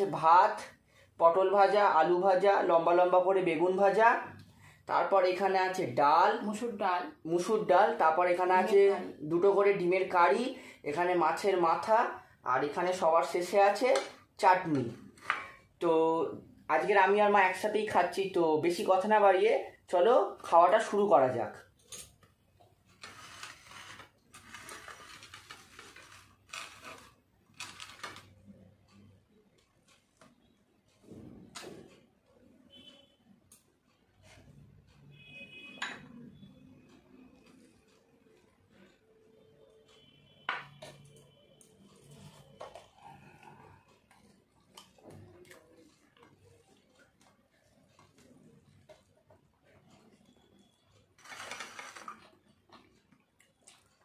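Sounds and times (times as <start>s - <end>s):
fingers mixing food on plates: 21.6s - 31.1s, 40.6s - 54.0s.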